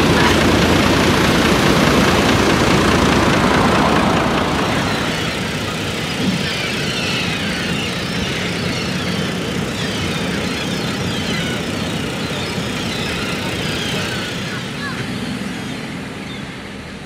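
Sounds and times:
tractor diesel engine running: 0.0 - 15.8
gull calls: 3.3 - 15.1.

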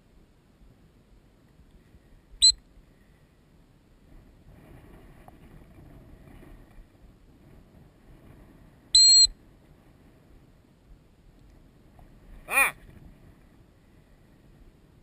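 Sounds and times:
faint wind: 0.0 - 15.0
dog whistle blast: 9.0 - 9.3.

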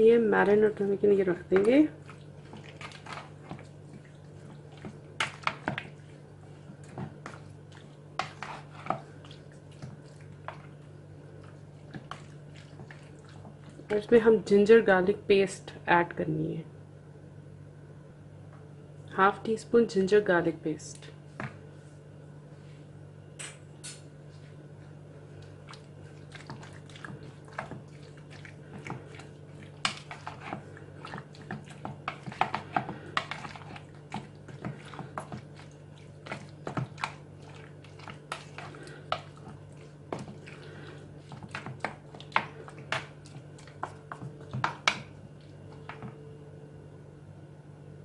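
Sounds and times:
faint steady hum: 0.0 - 48.0
spoon squelching in marinade: 0.6 - 14.0, 23.9 - 46.1.

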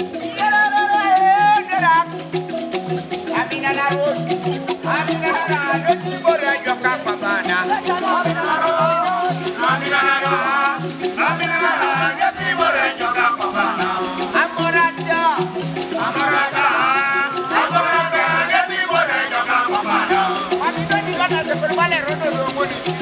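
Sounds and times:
low melodic line: 0.0 - 23.0
rattles shaking a fast beat: 0.0 - 23.0
group of voices singing: 3.3 - 23.0.

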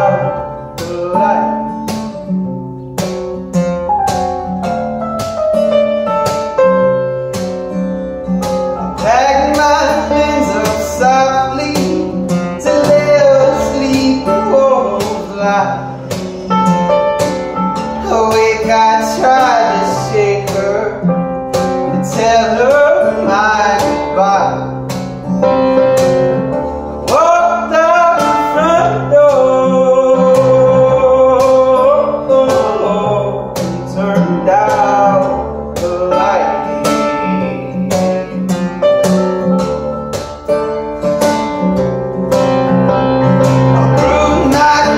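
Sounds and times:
man singing: 0.0 - 1.9, 8.8 - 16.5, 17.8 - 24.9, 27.0 - 37.7, 43.3 - 44.9
acoustic guitar: 0.0 - 44.9
keyboard: 0.0 - 44.9.

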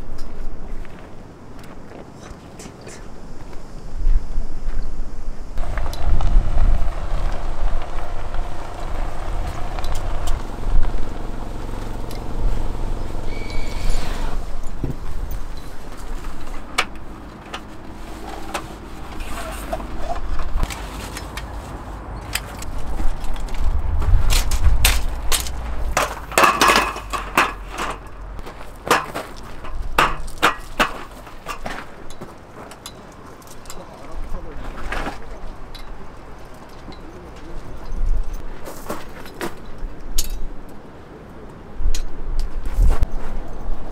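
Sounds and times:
tyres crackling on gravel: 4.6 - 40.7
engine humming: 5.0 - 38.4
metal table clanks and clicks: 24.9 - 28.2.

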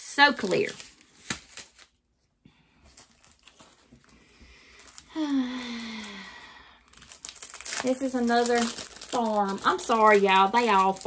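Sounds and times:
plastic package rustling: 0.3 - 2.1, 2.7 - 11.0.

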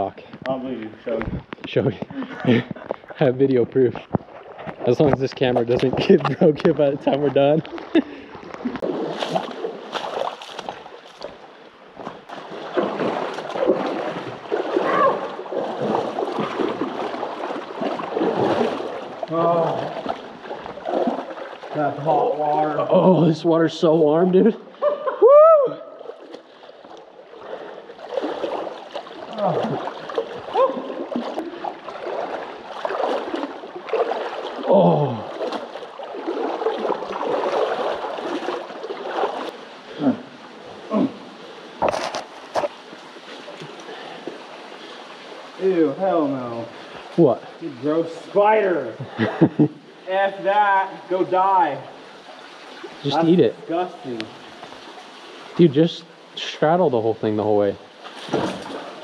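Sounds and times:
feet splashing through water: 4.0 - 22.9, 25.8 - 45.6, 57.9 - 59.0.

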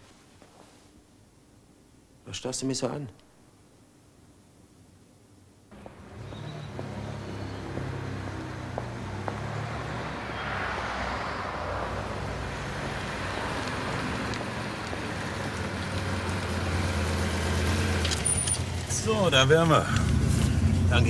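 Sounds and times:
car engine humming: 5.7 - 21.0.

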